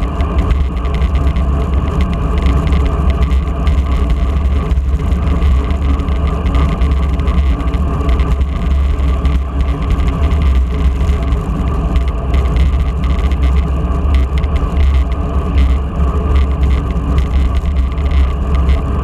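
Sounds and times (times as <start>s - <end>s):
wind rumble on microphone: 0.0s - 19.0s.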